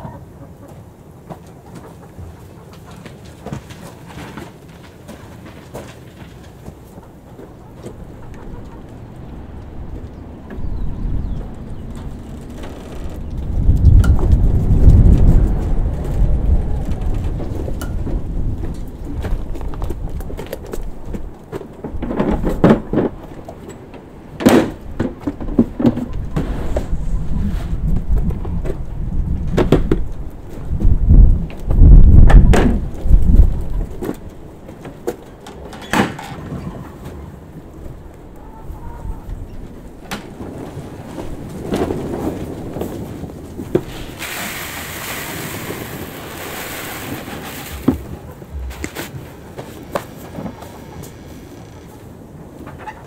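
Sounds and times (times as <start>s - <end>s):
low rumble: 7.5s - 20.2s, 47.4s - 49.9s
plastic bin and buckets clattering: 21.1s - 23.8s, 24.4s - 26.9s, 33.8s - 37.2s, 40.0s - 50.7s
rustling: 39.6s - 53.0s
grain pouring from a bucket: 43.9s - 48.0s.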